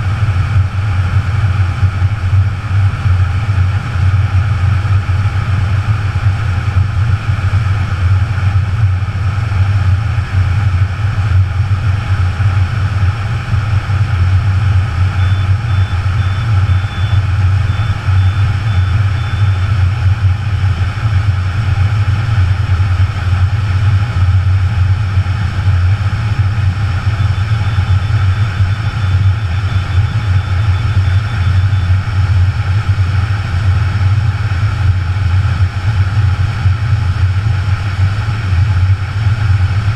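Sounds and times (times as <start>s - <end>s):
faint high beeping tones: 15.2s - 19.7s, 27.2s - 32.0s.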